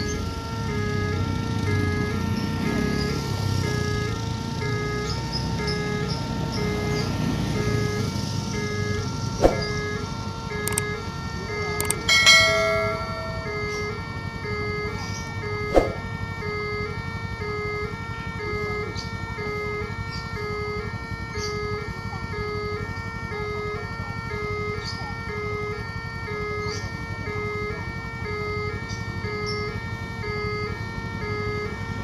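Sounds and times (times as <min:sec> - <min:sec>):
two-tone crossing alarm: 0:00.0 - 0:32.0
sharp knock with ringing tone: 0:09.4 - 0:09.8, 0:11.8 - 0:14.0, 0:15.7 - 0:16.0.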